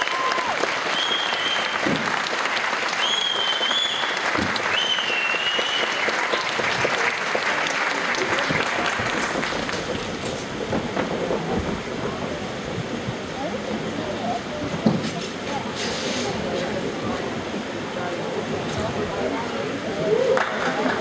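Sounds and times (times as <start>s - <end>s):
high-pitched whistles: 0.0s - 1.9s, 3.0s - 6.6s
audience applauding: 0.0s - 14.5s, 16.5s - 21.0s.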